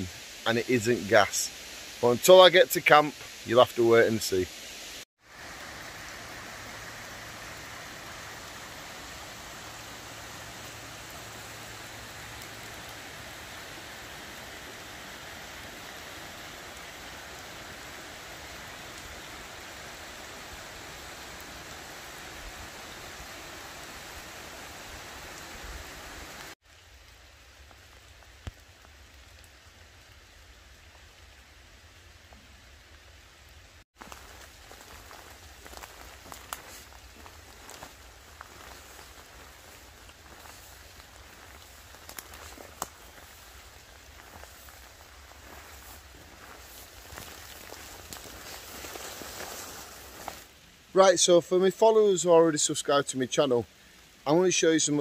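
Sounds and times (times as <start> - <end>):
heavy rain on leaves: 0.0 - 55.0.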